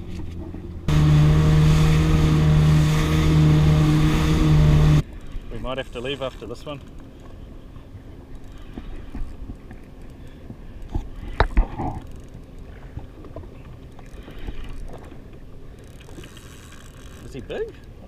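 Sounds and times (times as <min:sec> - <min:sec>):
water lapping against hull: 0:06.1 - 0:18.0.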